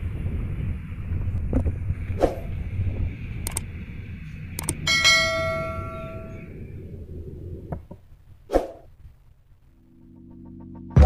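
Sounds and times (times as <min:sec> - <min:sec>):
freight train rumble: 0:00.0 - 0:08.3
bell ding: 0:04.9 - 0:06.4.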